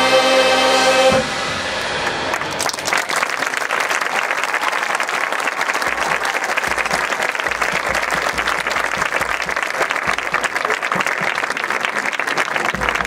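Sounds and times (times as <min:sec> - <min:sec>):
crowd applauding: 0:01.8 - 0:13.0.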